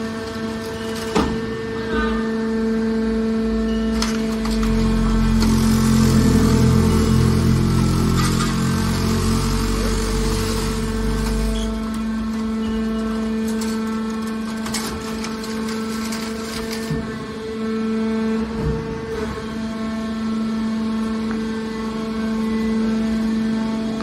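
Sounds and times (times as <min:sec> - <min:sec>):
hydraulic pump humming: 0:00.0 - 0:24.0.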